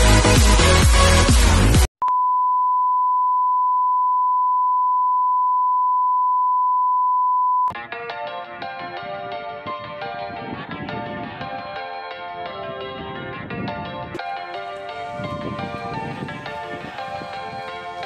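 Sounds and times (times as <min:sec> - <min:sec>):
electronic dance music: 0:00.0 - 0:01.9
soft song: 0:08.3 - 0:18.0.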